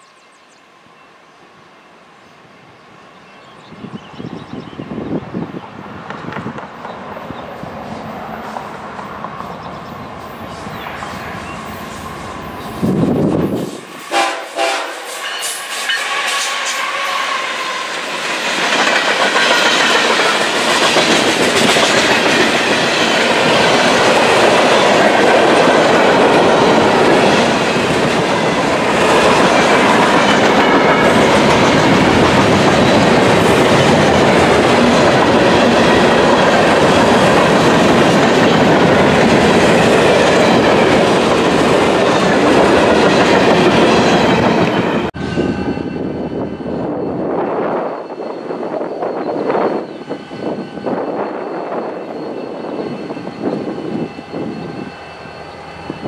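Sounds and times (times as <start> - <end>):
freight train rumbling on rails: 0.0 - 56.0
train horn note: 13.6 - 18.1.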